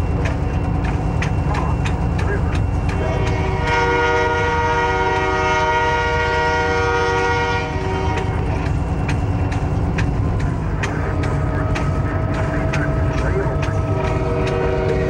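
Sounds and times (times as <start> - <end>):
locomotive engine rumble: 0.0 - 15.0
wheels clacking over rail joints: 0.0 - 15.0
locomotive air horn blast: 3.0 - 8.6, 13.9 - 15.0.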